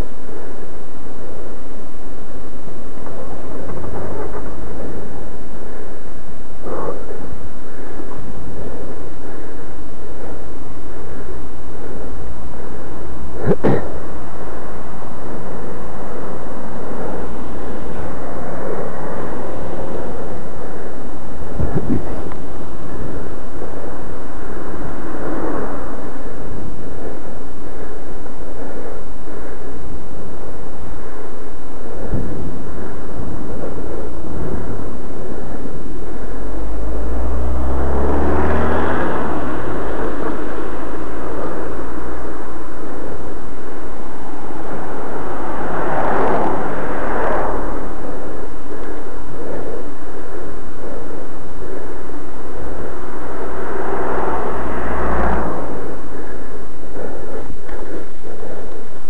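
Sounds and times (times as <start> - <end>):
road noise: 0.0 - 59.0
wind rushing: 0.0 - 59.0
car engine passing: 36.1 - 48.6, 52.5 - 57.2.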